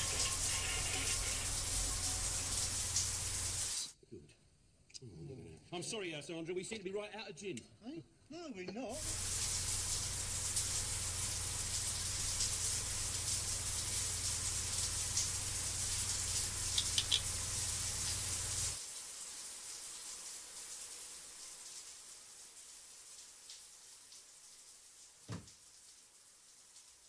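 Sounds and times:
faint hiss: 0.0 - 4.0
tap running into sink: 16.7 - 17.5, 25.3 - 25.6.

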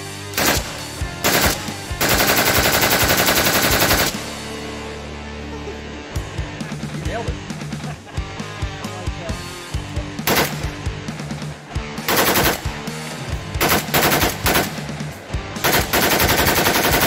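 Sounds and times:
rock music: 0.0 - 17.0
rifle firing automatic bursts: 0.4 - 4.2, 10.3 - 10.7, 12.1 - 12.8, 13.6 - 14.8, 15.6 - 17.0.

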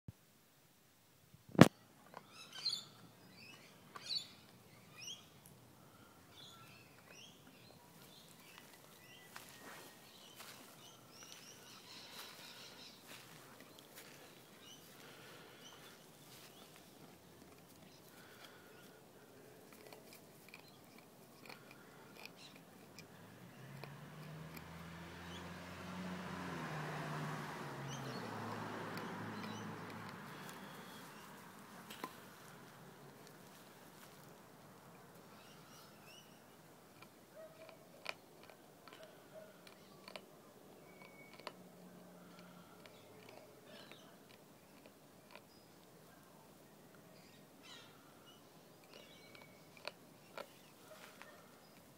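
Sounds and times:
birds chirping: 1.6 - 51.9
puppy gnawing a bone: 15.8 - 25.4, 28.0 - 34.1, 36.8 - 46.0, 48.8 - 51.9
puppy gnawing bone clicks: 40.9 - 41.6.

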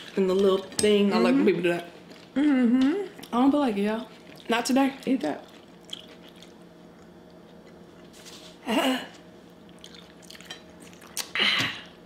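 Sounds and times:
people chewing: 4.0 - 12.0.

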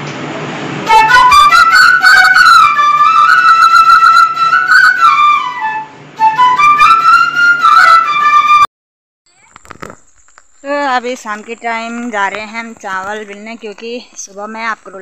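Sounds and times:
flute-like melody: 0.8 - 8.7.

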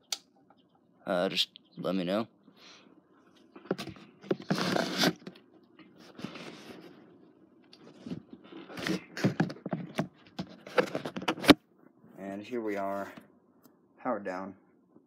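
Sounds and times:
handling scraping and rustling: 3.3 - 13.2.

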